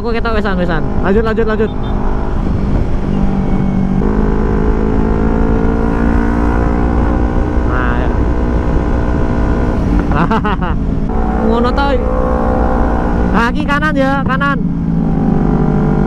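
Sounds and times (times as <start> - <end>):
wind rumble on microphone: 2.0 - 13.8.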